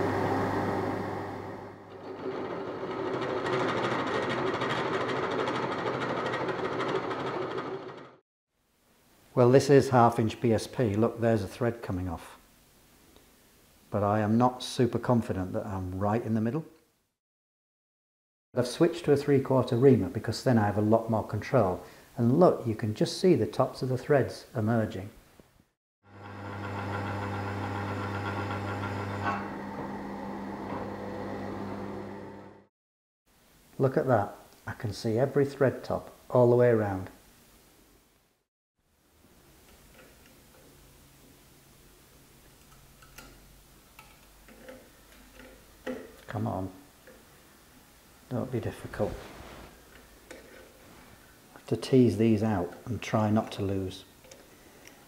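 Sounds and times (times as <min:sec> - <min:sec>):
drill press motor hum: 0:00.0 - 0:08.2, 0:26.1 - 0:32.6.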